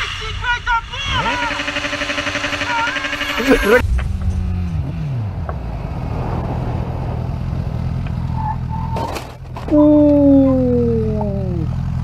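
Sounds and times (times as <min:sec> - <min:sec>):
motorcycle engine revving: 0:01.1 - 0:12.0.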